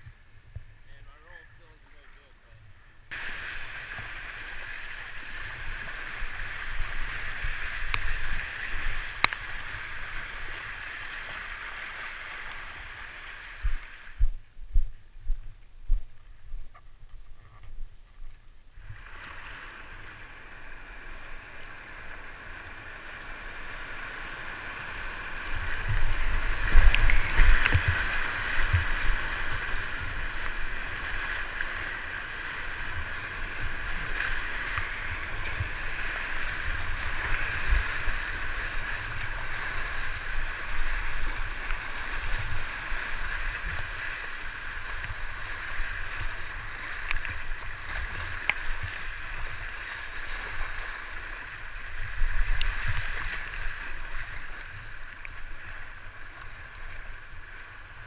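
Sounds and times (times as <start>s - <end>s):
paddle strokes: 0.0s - 58.0s
waves splashing against hull: 1.5s - 58.0s
whitewater rushing: 3.1s - 14.2s, 18.9s - 56.9s.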